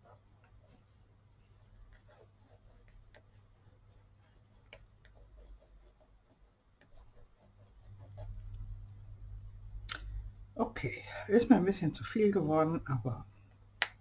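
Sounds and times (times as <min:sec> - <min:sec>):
crayon scratching on paper: 0:00.0 - 0:08.4
low hum: 0:07.6 - 0:10.9.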